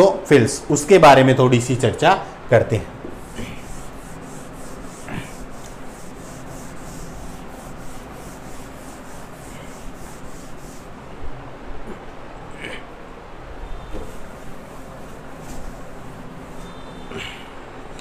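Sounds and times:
duster rubbing a whiteboard: 3.0 - 11.0, 13.8 - 17.4.

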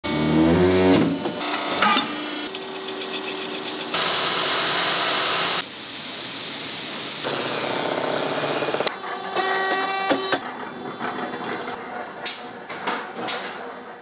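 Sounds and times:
spray hiss: 3.9 - 7.3
machine whirr: 7.2 - 14.0.

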